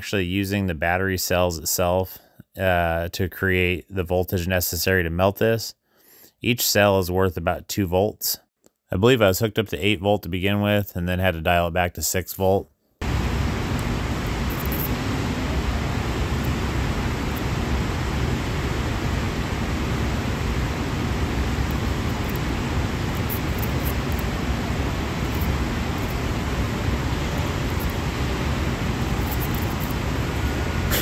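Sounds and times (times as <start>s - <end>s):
electric arc hissing: 13.0s - 31.0s.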